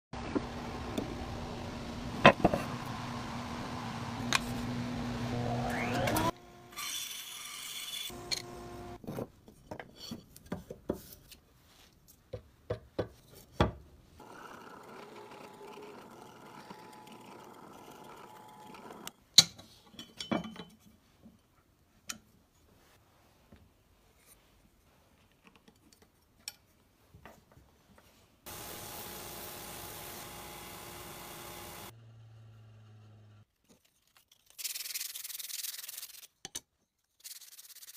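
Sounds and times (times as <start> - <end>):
bandsaw running: 14.2 - 19.1, 28.5 - 33.4
drill press running: 14.2 - 19.1, 28.5 - 33.4
belt sander sanding wood: 28.5 - 32.0.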